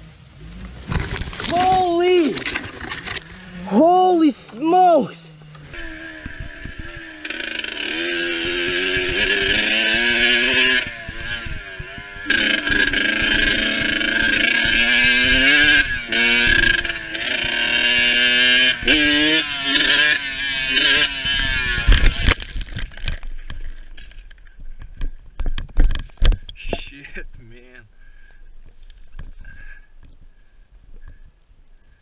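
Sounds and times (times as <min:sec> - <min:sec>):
dirt bike engine revving: 0:04.9 - 0:23.2.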